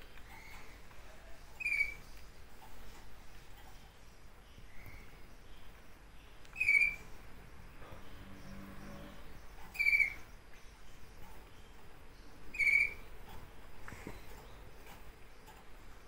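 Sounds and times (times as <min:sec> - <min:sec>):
bird nestlings high-pitched calls: 0:01.6 - 0:02.0, 0:06.5 - 0:07.1, 0:09.7 - 0:10.4, 0:12.5 - 0:13.1.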